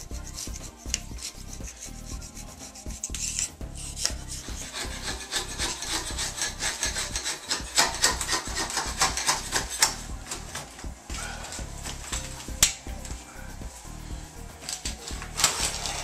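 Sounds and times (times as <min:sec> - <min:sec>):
razor scraper scraping caulk: 0:00.0 - 0:10.7.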